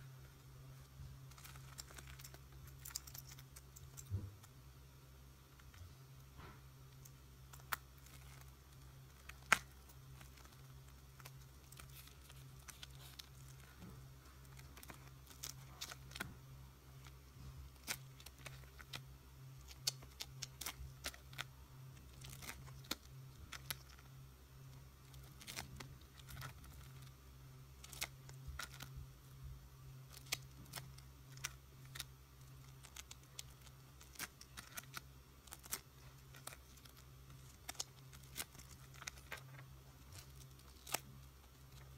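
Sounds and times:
steady low hum: 0:00.0 - 0:41.9
plastic pockets clicking and crinkling: 0:05.6 - 0:16.4, 0:17.0 - 0:24.1, 0:30.1 - 0:41.9.

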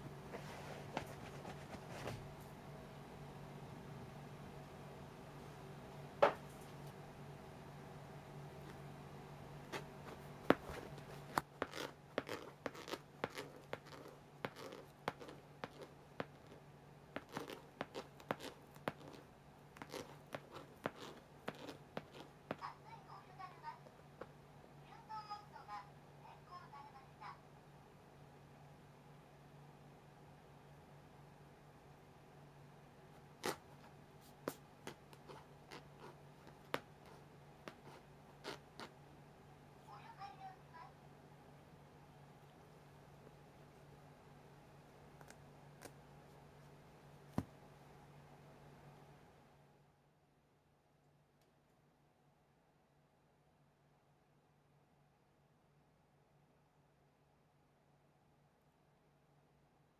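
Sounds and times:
faint steady hum: 0:00.0 - 0:59.9
cat claws scratching fabric: 0:09.6 - 0:22.8, 0:33.4 - 0:39.0.

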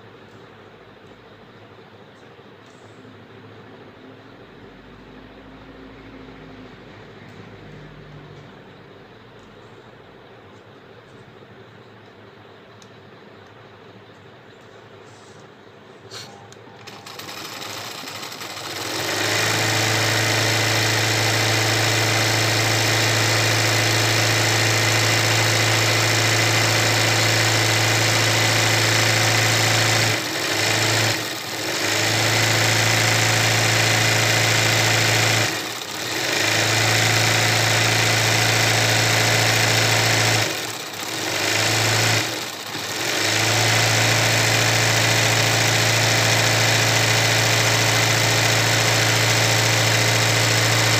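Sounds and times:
sewing machine running: 0:16.8 - 0:50.9.

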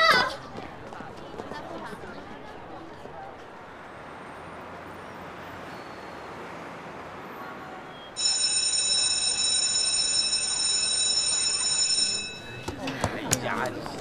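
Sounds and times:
electric bell ringing: 0:08.2 - 0:12.6.

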